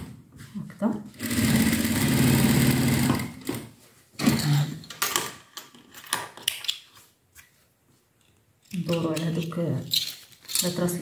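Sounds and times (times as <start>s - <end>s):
sewing machine stitching: 1.1s - 3.5s.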